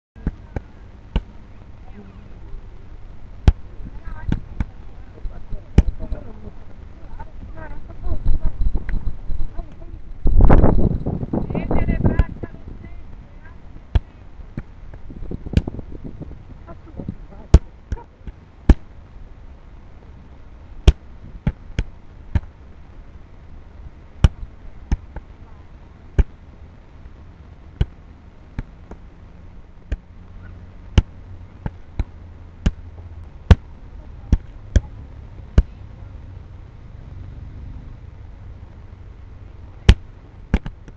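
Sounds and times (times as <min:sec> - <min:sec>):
gloves smacking kickboxing pads: 0:13.9 - 0:15.8, 0:24.2 - 0:25.3, 0:39.9 - 0:40.9.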